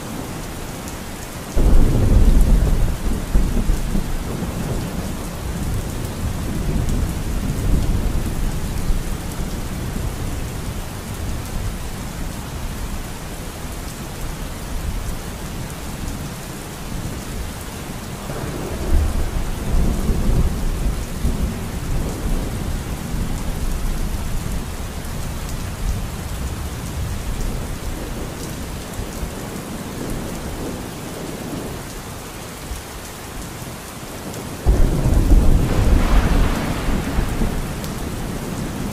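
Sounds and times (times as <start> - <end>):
steady rain: 0.0 - 38.9
low rolling thunder: 1.6 - 11.8, 18.2 - 28.2, 34.2 - 38.9.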